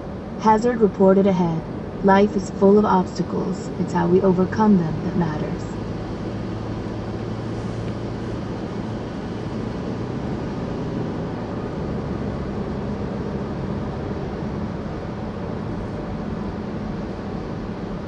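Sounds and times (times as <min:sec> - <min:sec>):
car tyre and engine hum: 0:05.6 - 0:18.0.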